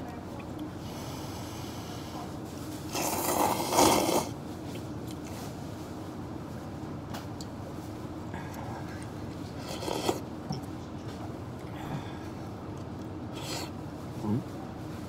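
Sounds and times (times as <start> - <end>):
steady low hum: 0.0 - 15.0
person slurping noodles: 2.9 - 4.4, 9.6 - 10.2, 13.3 - 13.7.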